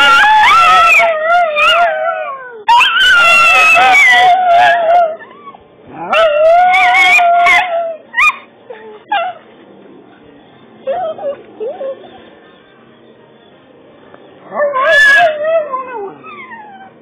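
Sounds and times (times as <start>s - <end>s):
dog howling: 0.0s - 9.4s, 14.5s - 17.0s.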